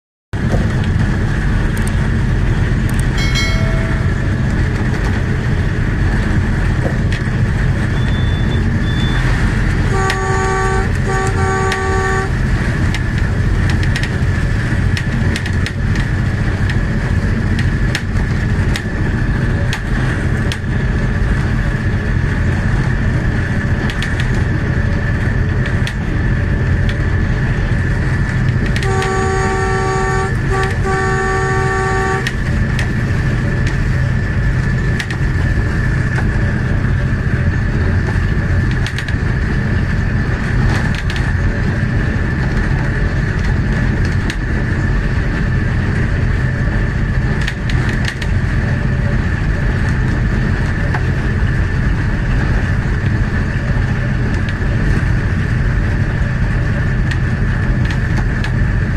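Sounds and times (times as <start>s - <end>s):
diesel locomotive rumbling on rails: 0.4s - 58.9s
locomotive horn blasts: 3.2s - 4.4s, 8.0s - 12.6s, 28.6s - 32.7s.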